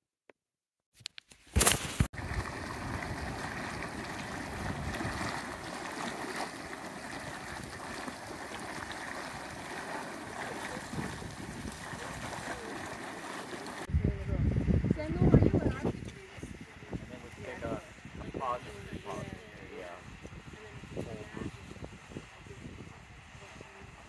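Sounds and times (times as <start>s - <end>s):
mud bubbling and gurgling: 1.8s - 14.0s.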